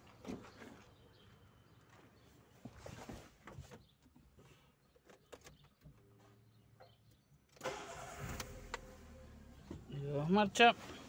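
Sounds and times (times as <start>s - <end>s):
car engine starting and running: 7.5s - 11.0s.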